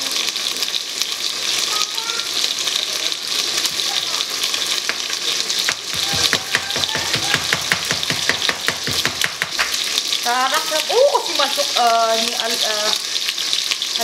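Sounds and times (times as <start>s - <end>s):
chicken sizzling in pot: 0.0s - 14.0s
knife chopping on cutting board: 4.8s - 9.9s.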